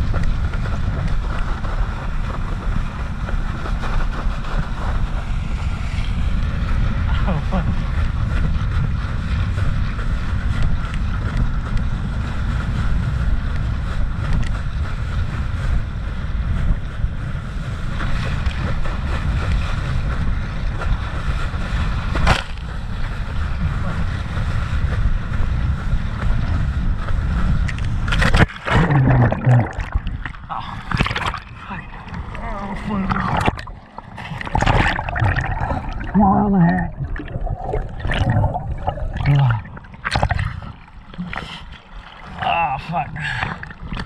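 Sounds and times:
water rushing and spraying: 0.0 - 44.0
wind buffeting microphone: 0.0 - 44.0
churning splash: 27.2 - 44.0.

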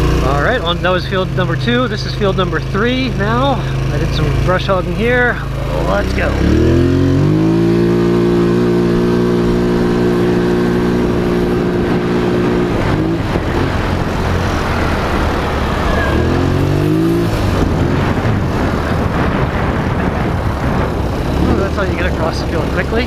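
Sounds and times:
atv engine revving: 0.0 - 23.0
rushing noise: 4.8 - 23.0.

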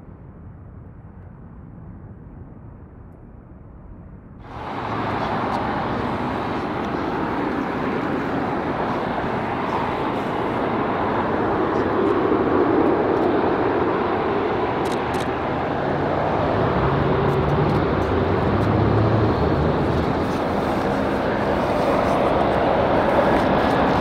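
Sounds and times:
jet airliner engines rumbling: 4.4 - 24.0.

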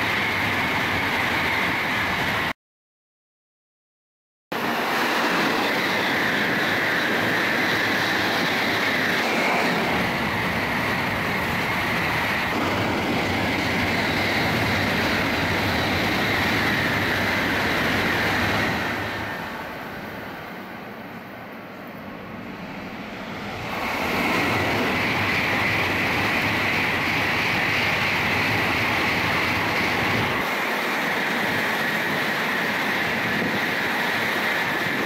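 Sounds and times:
high-speed train rushing past: 0.0 - 2.6, 4.5 - 35.0.

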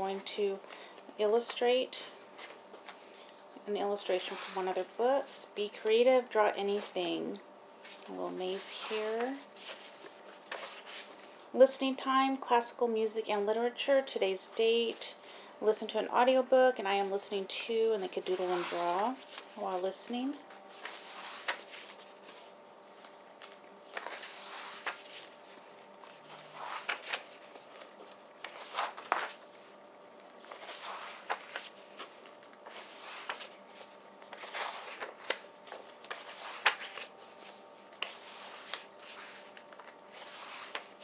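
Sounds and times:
paper pages turning: 7.8 - 11.4, 18.1 - 41.0.

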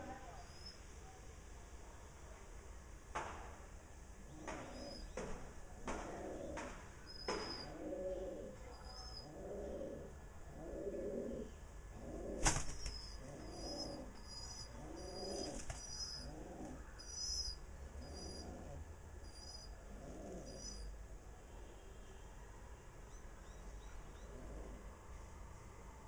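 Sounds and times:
small birds chirping: 4.3 - 5.4, 6.3 - 10.1, 12.4 - 21.0, 23.1 - 24.8
pigeon cooing: 5.9 - 6.7, 7.3 - 20.9, 24.2 - 24.9.

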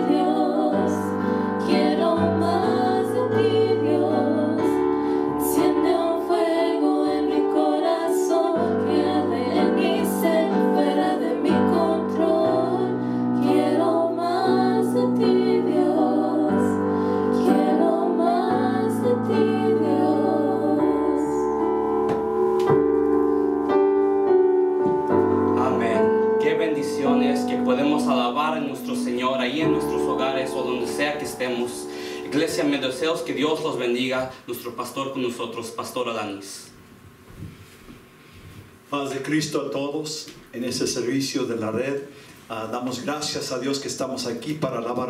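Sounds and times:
women singing a worship song: 0.0 - 21.6
keyboard chords: 0.0 - 33.9.

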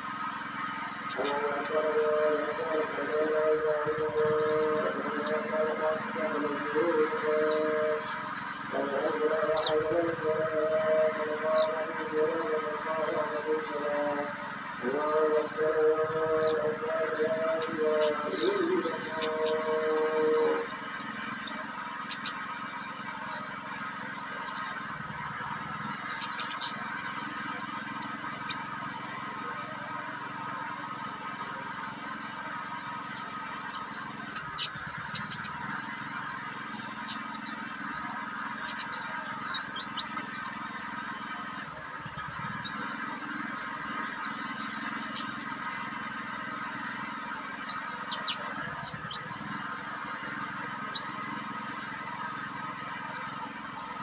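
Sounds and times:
thrush singing chirps and whistles: 0.0 - 12.1, 12.8 - 29.6, 30.4 - 31.0, 33.5 - 54.0
steady background drone: 0.0 - 54.0.

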